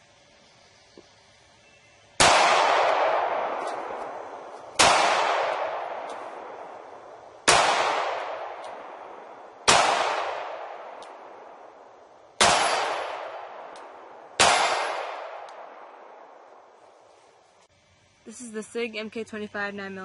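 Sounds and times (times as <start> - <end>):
pistol shots with echo: 2.2 - 16.4.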